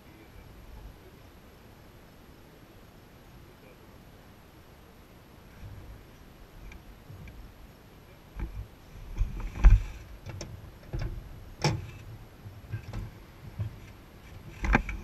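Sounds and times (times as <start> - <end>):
knocks clicks and thumps: 8.4 - 15.0.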